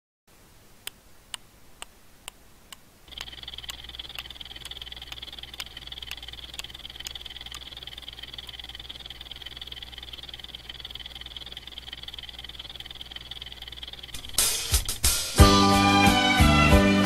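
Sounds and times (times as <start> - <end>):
low hum: 0.3 - 15.9
clock ticking: 0.8 - 15.5
high-pitched buzz: 3.1 - 16.2.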